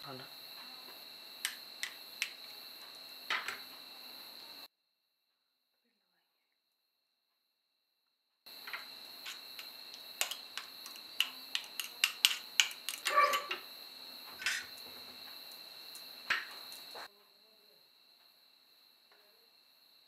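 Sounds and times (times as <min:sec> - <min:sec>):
metal spoon clicking on bowl: 0:09.3 - 0:13.5.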